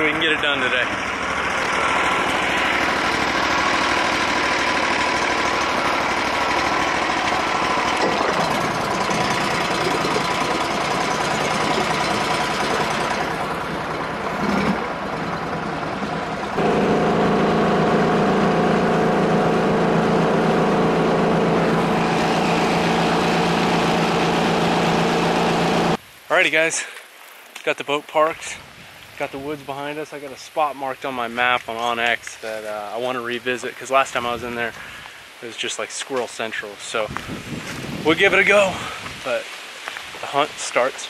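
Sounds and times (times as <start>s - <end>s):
boat motor running: 0.0s - 26.0s.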